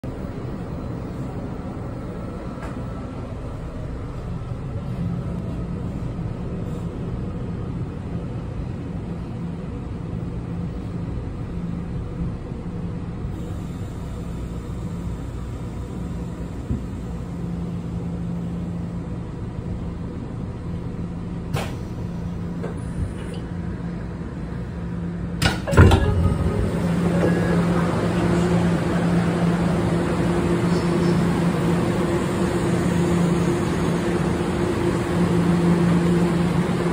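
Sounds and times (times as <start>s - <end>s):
train low drone hum: 0.0s - 36.9s
train rumble: 0.0s - 36.9s
heavy clunk: 25.4s - 26.7s.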